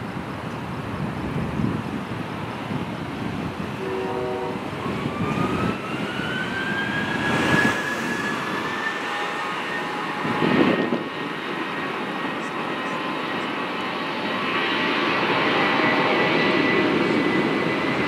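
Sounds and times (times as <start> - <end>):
jet engines spooling up: 4.6 - 18.0.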